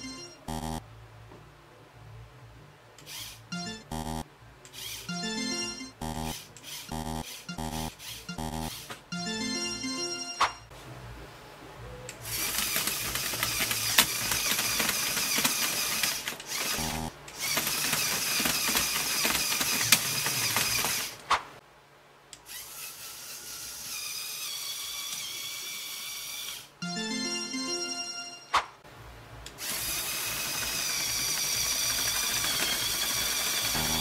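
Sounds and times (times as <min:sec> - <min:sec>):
electric motors whirring and rattling: 0:03.0 - 0:03.4, 0:06.1 - 0:09.0, 0:12.2 - 0:21.3, 0:22.4 - 0:26.7, 0:29.5 - 0:34.0
high motor whine: 0:16.6 - 0:17.2, 0:31.7 - 0:34.0.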